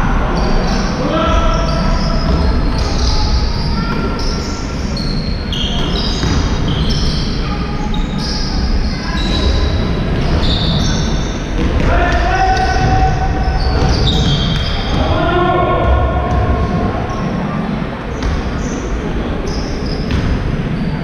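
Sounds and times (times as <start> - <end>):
shoes squeaking on floor: 0.7 - 15.2, 18.1 - 21.0
basketball bouncing: 6.0 - 6.6, 9.3 - 15.1, 15.8 - 17.2, 18.2 - 18.8.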